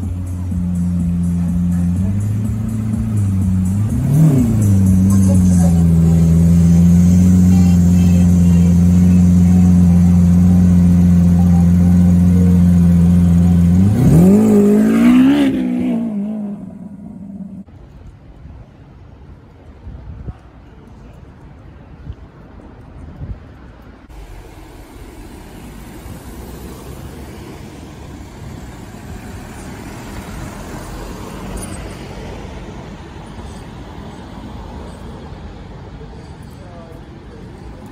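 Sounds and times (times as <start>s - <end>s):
car engine idling: 0.0s - 17.7s, 24.1s - 32.0s
car engine revving: 0.0s - 17.7s, 24.1s - 32.0s.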